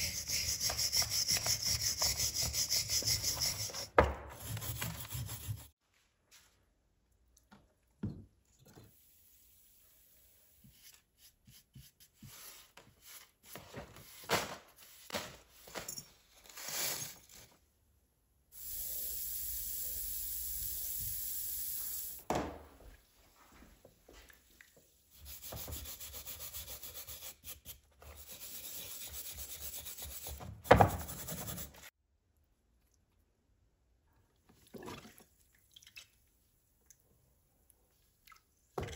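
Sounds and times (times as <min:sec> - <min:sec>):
scraping and handling noises: 0:12.2 - 0:17.6.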